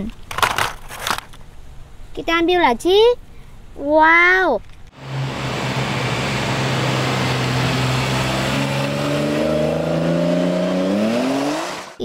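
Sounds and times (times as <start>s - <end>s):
car engine and exhaust driving off: 4.9s - 12.0s.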